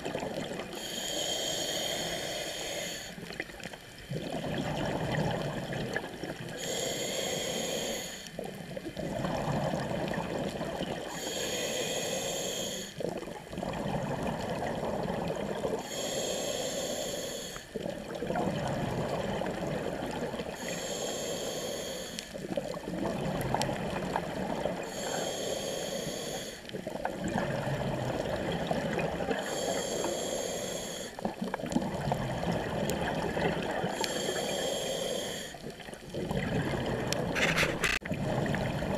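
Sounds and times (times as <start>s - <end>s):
exhaled air bubbling: 0.0s - 16.9s, 17.7s - 38.9s
regulator hissing inhale: 0.8s - 3.2s, 6.5s - 8.4s, 11.1s - 13.0s, 15.8s - 17.9s, 20.5s - 22.4s, 24.8s - 26.7s, 29.4s - 31.3s, 33.9s - 35.7s.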